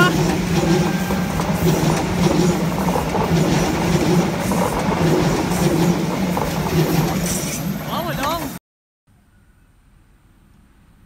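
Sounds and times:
train wheels rumbling on rails: 0:00.0 - 0:08.6
train wheel clicks: 0:00.1 - 0:08.5.

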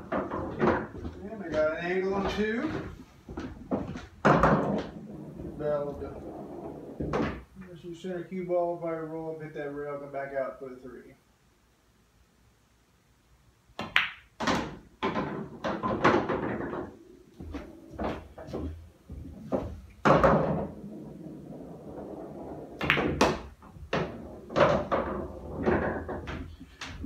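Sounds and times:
pool balls clacking: 0:00.0 - 0:07.6, 0:13.8 - 0:27.0.

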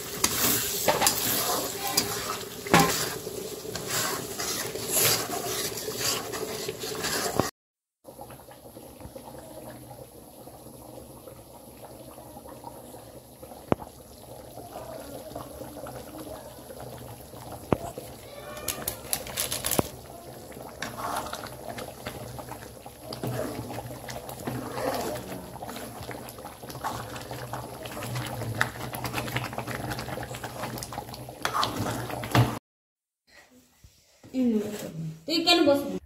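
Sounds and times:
ladle clinking and scraping pan: 0:00.0 - 0:07.5
thick curry bubbling in a pan: 0:00.0 - 0:32.6.

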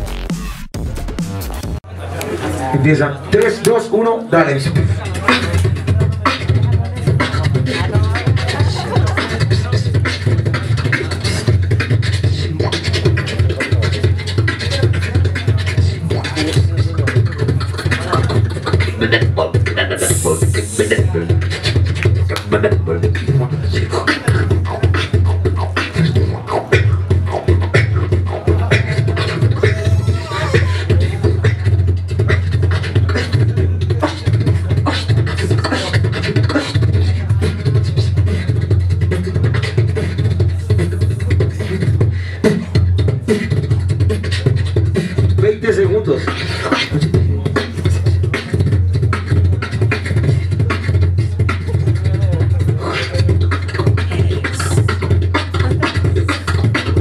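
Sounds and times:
person beatboxing into microphone: 0:02.2 - 0:57.0
deep bass tone: 0:28.5 - 0:31.6.

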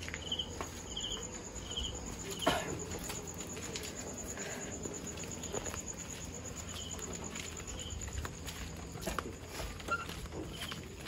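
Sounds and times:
flip-flop footsteps on concrete: 0:00.0 - 0:11.0
night insects trilling: 0:00.0 - 0:11.0.

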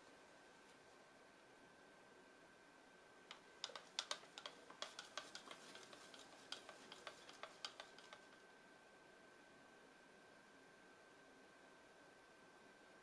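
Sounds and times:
stick scraping plastic cup: 0:03.3 - 0:08.4.

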